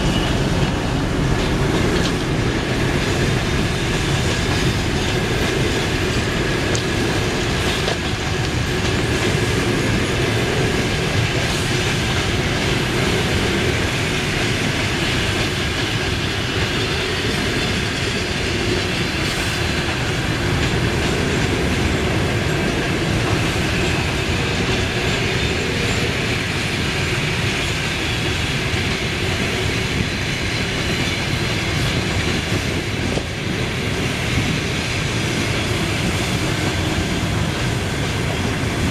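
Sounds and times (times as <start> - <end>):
train wheels rumbling on rails: 0.0 - 38.9.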